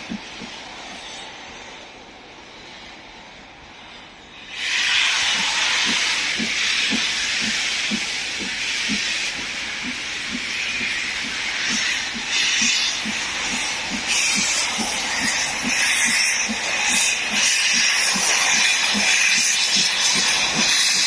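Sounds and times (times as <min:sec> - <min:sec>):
loud steam hiss: 0:00.0 - 0:21.0
steam locomotive exhaust beats: 0:00.0 - 0:21.0.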